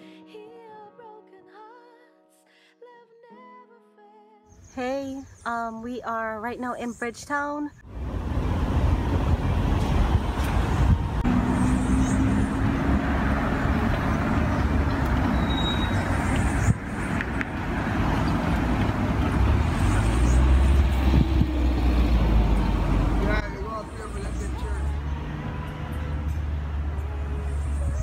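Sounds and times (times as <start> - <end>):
road traffic rumble: 6.6 - 28.0
engine hum: 7.8 - 28.0.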